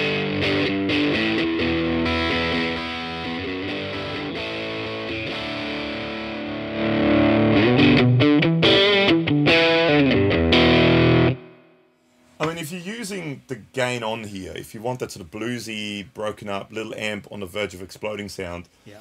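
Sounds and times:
overdriven electric guitar: 0:00.0 - 0:11.9.

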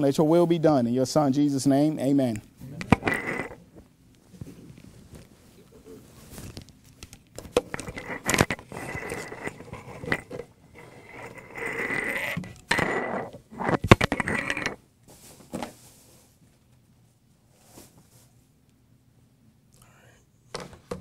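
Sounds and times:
lapel microphone handling: 0:02.4 - 0:10.5
microphone rubbing against clothing: 0:02.5 - 0:06.6, 0:07.7 - 0:16.1.

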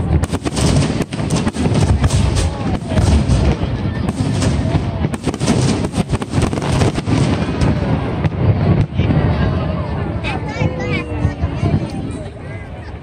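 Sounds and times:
fireworks bangs: 0:00.0 - 0:12.3.

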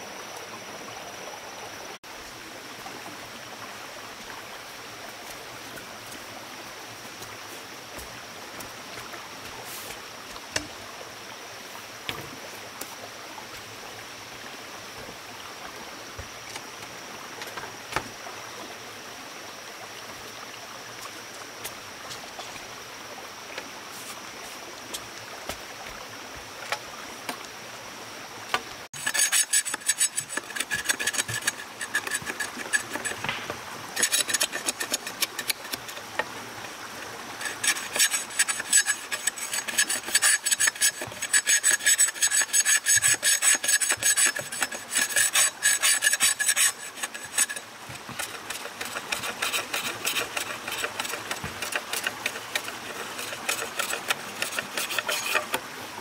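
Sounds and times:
running water hiss: 0:00.0 - 0:56.0
rasping filing strokes: 0:29.0 - 0:33.4, 0:34.0 - 0:36.2, 0:37.4 - 0:55.6.

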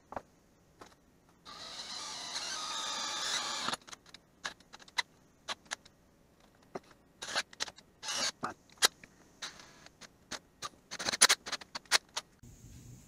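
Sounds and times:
cordless drill boring through steel: 0:01.5 - 0:03.8, 0:08.0 - 0:08.4.

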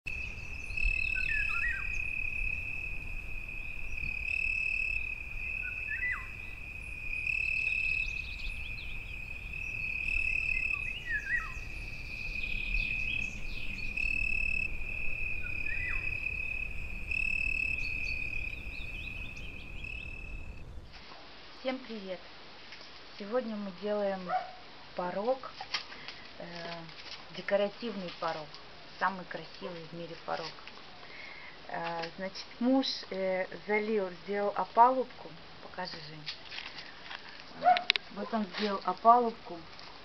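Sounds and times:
bird downward-sliding call: 0:00.1 - 0:21.0
crickets trilling: 0:00.1 - 0:21.0.

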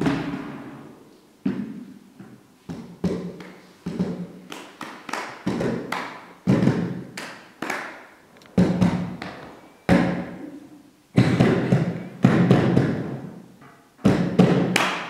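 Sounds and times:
hands drumming on plastic tubs: 0:01.5 - 0:07.9, 0:08.6 - 0:10.3, 0:11.2 - 0:13.3, 0:14.0 - 0:15.0.

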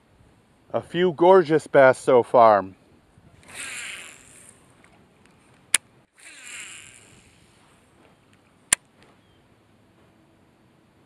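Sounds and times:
fishing reel whirring: 0:03.4 - 0:05.0, 0:06.1 - 0:07.6
sharp reel click: 0:03.4 - 0:05.0, 0:05.7 - 0:07.4.

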